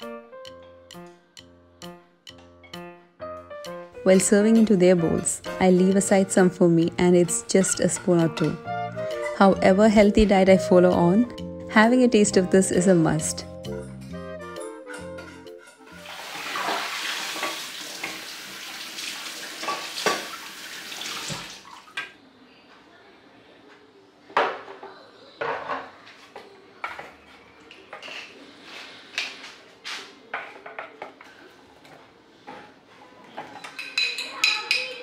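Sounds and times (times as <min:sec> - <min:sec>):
water running: 0:15.9 - 0:22.2
metal spoon clinking against bowl: 0:33.6 - 0:35.0.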